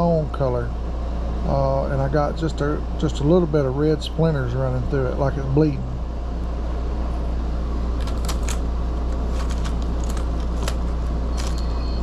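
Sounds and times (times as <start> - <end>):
steady low hum: 0.0 - 12.0
plastic tackle box rattling: 9.2 - 11.6.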